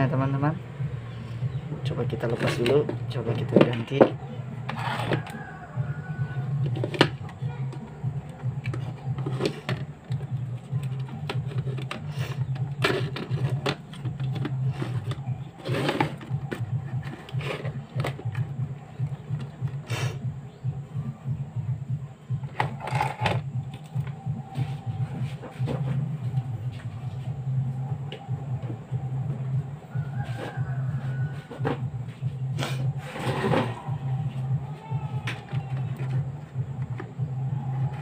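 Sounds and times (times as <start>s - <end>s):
low pulsing drone: 0.0s - 38.0s
plastic case knocks and clicks: 2.2s - 4.2s, 6.6s - 19.8s.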